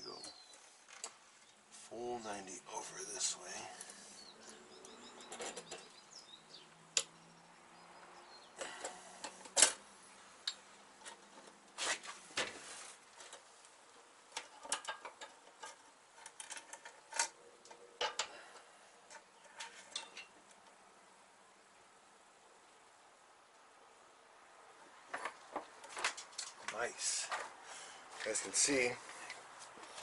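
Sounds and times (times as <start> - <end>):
light clicks and metal taps: 10.4 - 11.6, 13.2 - 20.8.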